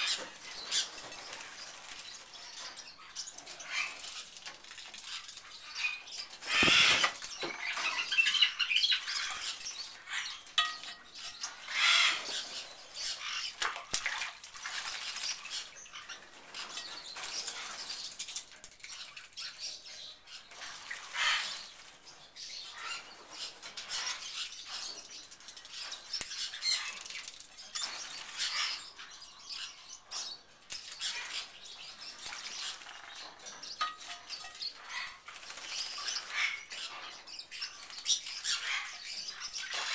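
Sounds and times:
bird splashing and flapping in water: 0:06.4 - 0:08.4, 0:13.4 - 0:18.3, 0:32.0 - 0:36.6.

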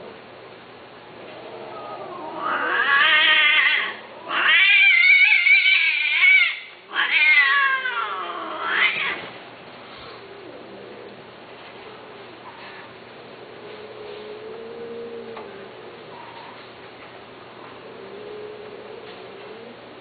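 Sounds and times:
cat yowling: 0:01.5 - 0:09.3.

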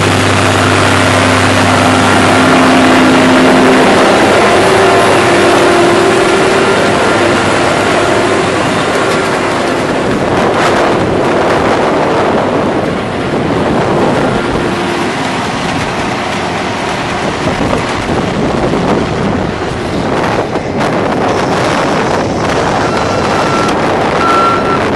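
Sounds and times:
steady beeping: 0:00.0 - 0:10.5, 0:22.5 - 0:24.9
harvester machinery din: 0:00.0 - 0:24.9
wind buffeting microphone: 0:00.0 - 0:24.9.

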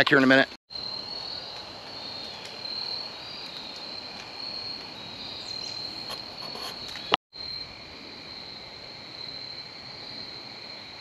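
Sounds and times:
insects trilling: 0:00.3 - 0:11.0.

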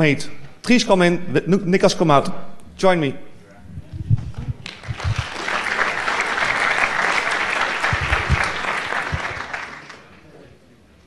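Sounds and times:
low thumps: 0:03.6 - 0:05.3, 0:07.8 - 0:09.4
audience applauding: 0:04.6 - 0:10.2.

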